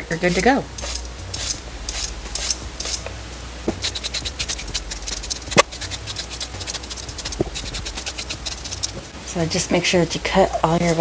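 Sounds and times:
peeler scraping carrot: 0.3 - 3.0, 3.8 - 9.0.

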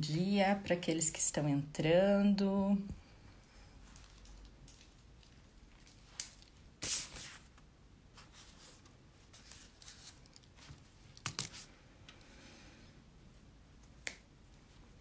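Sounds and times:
rustling handling noises: 3.4 - 11.8.

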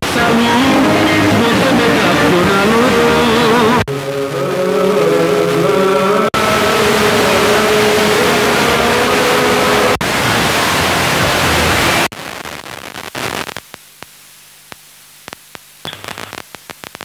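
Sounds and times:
radio static hiss: 0.0 - 17.0
crackling clicks: 12.2 - 17.0.

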